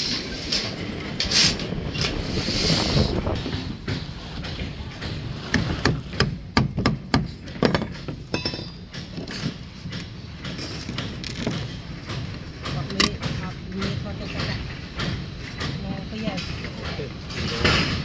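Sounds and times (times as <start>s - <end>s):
hammer knocking on metal: 3.8s - 9.3s.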